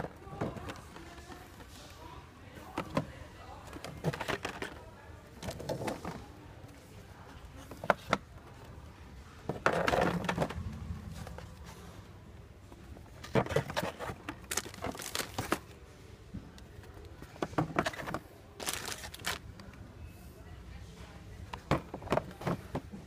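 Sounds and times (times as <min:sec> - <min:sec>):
plastic packaging crinkling: 0:14.5 - 0:15.6, 0:18.6 - 0:19.4.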